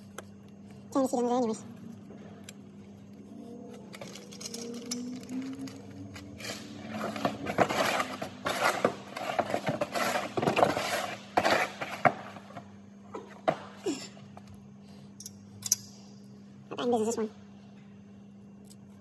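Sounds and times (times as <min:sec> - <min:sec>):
steady low hum: 0:00.0 - 0:19.0
rustling and scraping: 0:03.0 - 0:12.7.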